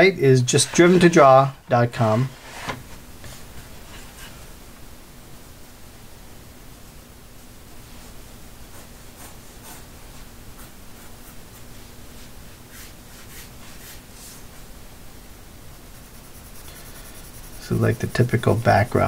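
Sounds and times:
faint steady hiss: 0.0 - 19.0
pencil scratching on paper: 8.7 - 11.6, 12.7 - 14.0, 15.9 - 19.0.

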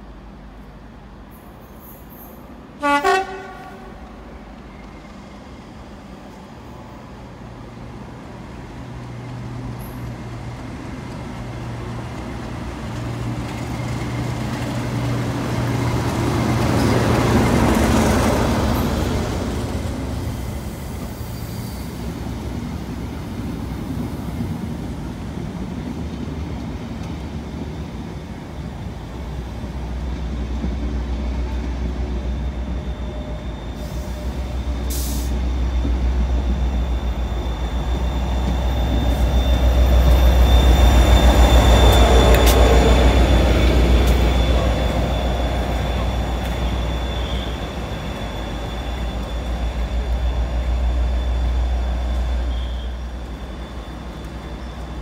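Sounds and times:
locomotive engine drone: 22.0 - 55.0.

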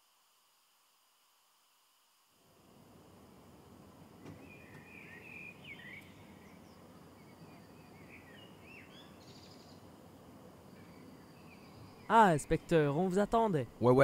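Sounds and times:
birds chirping: 4.2 - 14.0.

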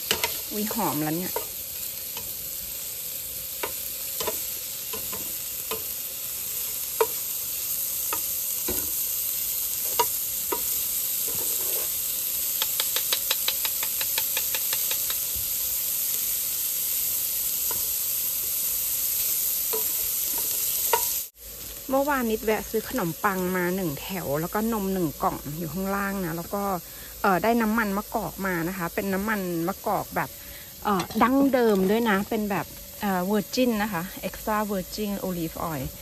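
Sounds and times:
sausages sizzling in a frying pan: 0.0 - 36.0
plastic spatula clicking on pan: 12.6 - 15.2.

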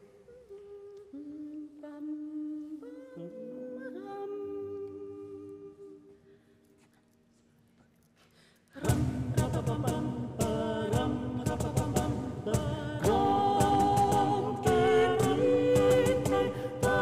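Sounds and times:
vocal group humming held notes: 8.8 - 17.0.

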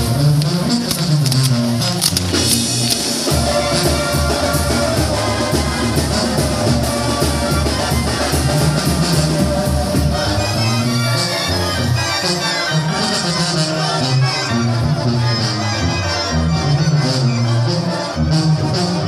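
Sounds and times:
band with brass and drums: 0.0 - 19.0.

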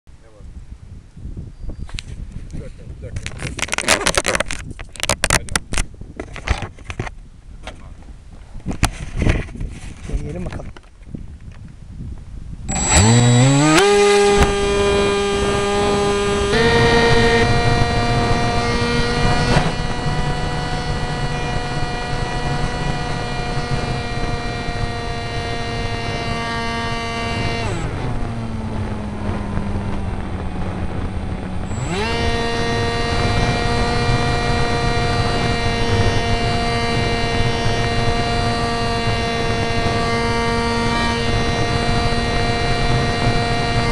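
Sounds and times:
wind rush: 0.2 - 43.9
electric motor and propeller whine: 12.7 - 43.9.

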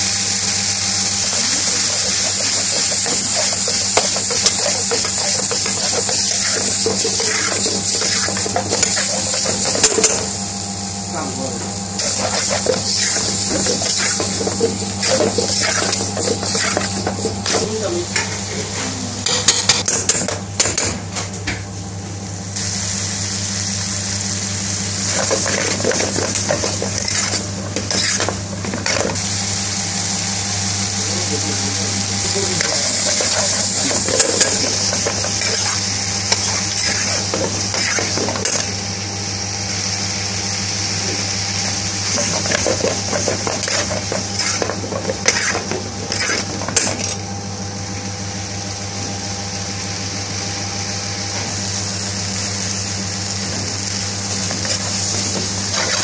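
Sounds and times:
curry sizzling in a pan: 0.0 - 18.5, 22.5 - 56.0
metal spoon scraping a pan: 1.3 - 10.3, 12.0 - 17.6, 25.1 - 29.2, 32.6 - 38.8, 42.0 - 47.2, 54.6 - 56.0.

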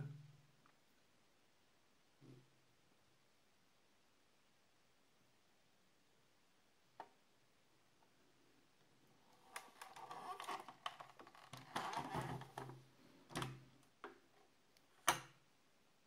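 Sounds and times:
model car handling rubbing: 9.5 - 12.8.

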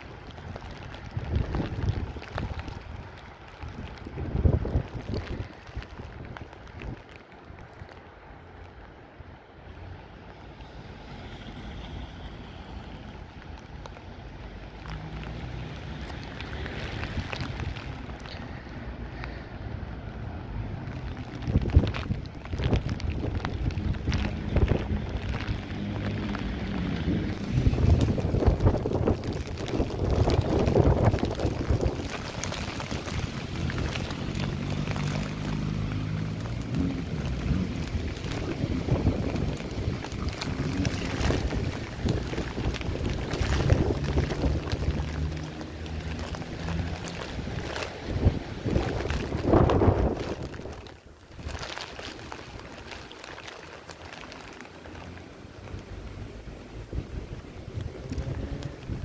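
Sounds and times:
wind buffeting microphone: 0.0 - 7.1, 21.0 - 52.9, 56.7 - 59.0.

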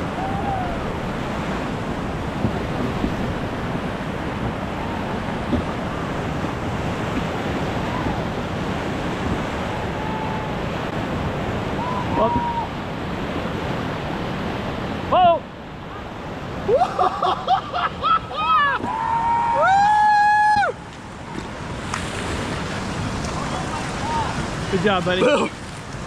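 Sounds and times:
whitewater rushing: 0.0 - 26.0.

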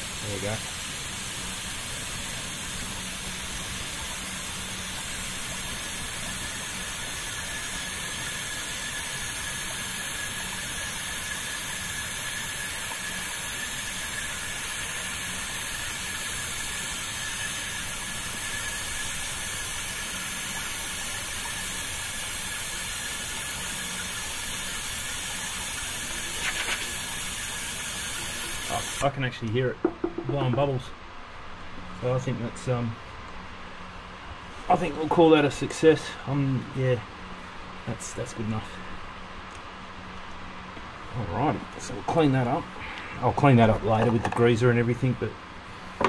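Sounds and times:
oil extractor pump hissing: 0.0 - 29.2
faint pump whine: 0.0 - 46.0.

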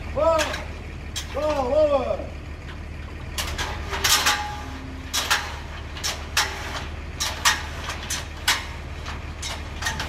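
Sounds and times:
steady low hum: 0.0 - 10.0
ladder metal clanks and clicks: 0.3 - 1.8, 3.3 - 10.0.

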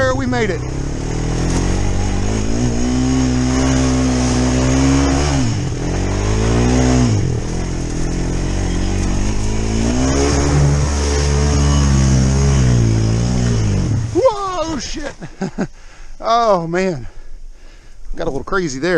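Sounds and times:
quad bike engine revving: 0.0 - 15.3
water spraying: 0.7 - 15.4.

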